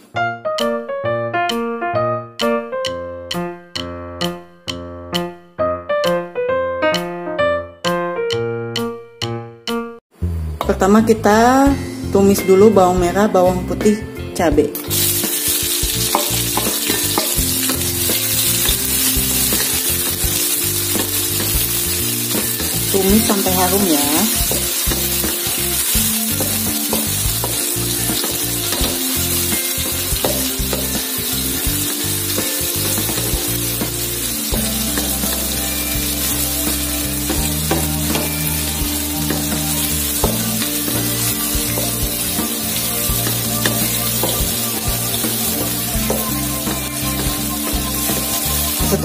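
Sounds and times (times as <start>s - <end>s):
food sizzling in hot oil: 14.8s - 49.0s
spatula scraping a wok: 14.9s - 49.0s.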